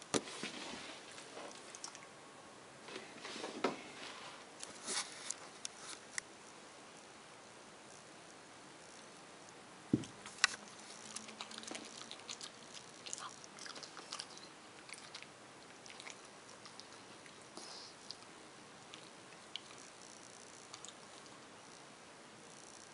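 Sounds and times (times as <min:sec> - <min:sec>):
dull thump: 0:09.9 - 0:10.2
dog crunching and chewing: 0:10.2 - 0:21.4.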